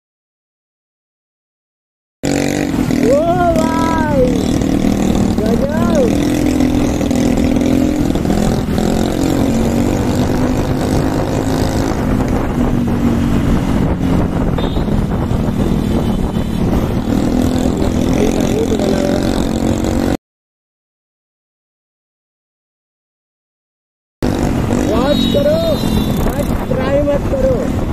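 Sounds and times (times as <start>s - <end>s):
motorcycle engine running: 2.2s - 20.2s, 24.2s - 27.9s
wind rushing over microphone: 2.3s - 20.2s, 24.2s - 27.9s.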